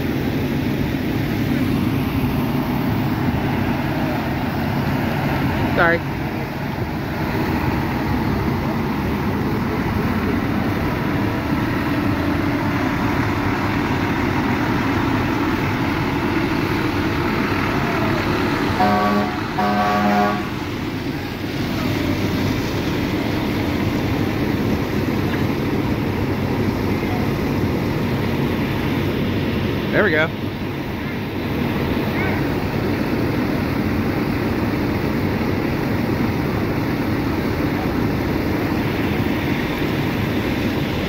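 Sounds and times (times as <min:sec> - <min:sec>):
fire truck running: 0:00.0 - 0:41.0
truck horn blasts: 0:18.7 - 0:20.7.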